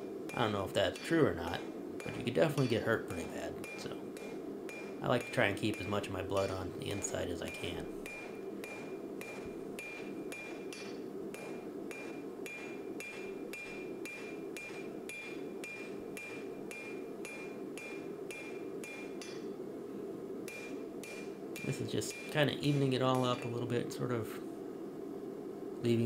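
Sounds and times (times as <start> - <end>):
steady rushing noise: 0.0 - 26.0
anvil ringing: 0.3 - 6.6, 7.4 - 19.5
hammer striking metal on anvil: 0.3 - 19.6, 20.5 - 23.6.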